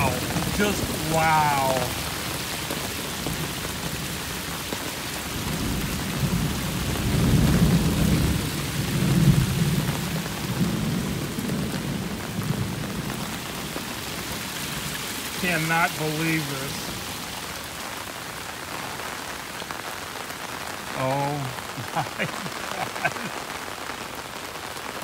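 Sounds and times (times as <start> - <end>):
runoff water spilling: 0.0 - 19.5, 20.6 - 25.0
heavy rain hissing: 0.0 - 25.0
low rumble of thunder: 5.4 - 13.6.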